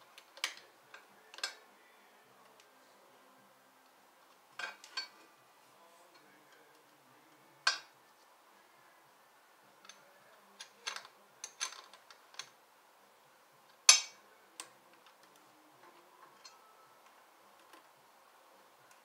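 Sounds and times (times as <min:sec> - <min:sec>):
metal tools clicking and clinking: 0:16.4 - 0:16.7.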